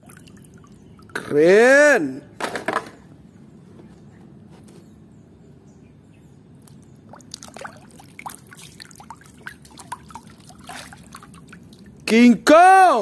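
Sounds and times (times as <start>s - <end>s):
water splashing and trickling: 0.0s - 1.2s, 6.6s - 12.4s.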